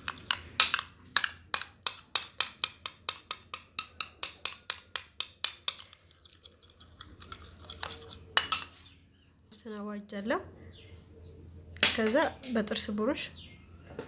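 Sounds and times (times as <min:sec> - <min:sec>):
spoon clinking in a dish: 0:00.0 - 0:08.8.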